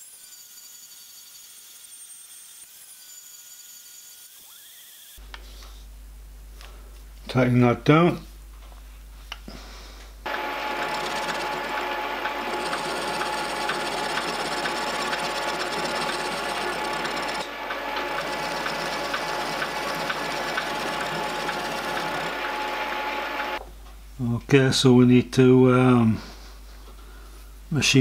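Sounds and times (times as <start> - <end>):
milling machine cutting metal: 10.3 - 23.6.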